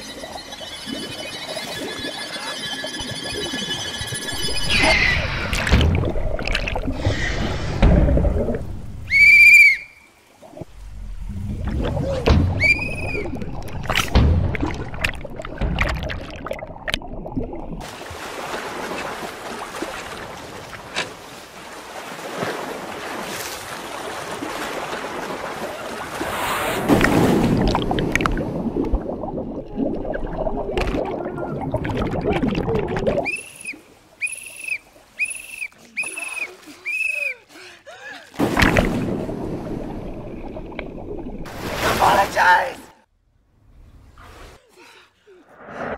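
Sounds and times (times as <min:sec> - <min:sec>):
pool water splashing: 0:04.2 - 0:42.9
muffled underwater bubbles: 0:10.4 - 0:17.8, 0:27.0 - 0:33.3, 0:38.7 - 0:41.8
loud splash: 0:17.8 - 0:29.6, 0:38.4 - 0:42.5.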